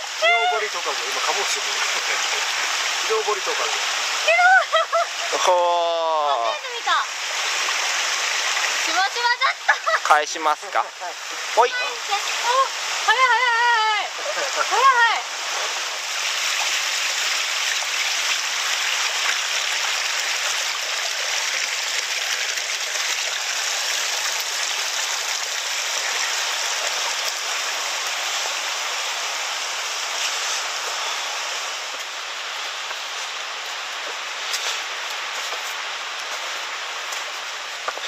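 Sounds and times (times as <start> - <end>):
stream running water: 0.0 - 38.0.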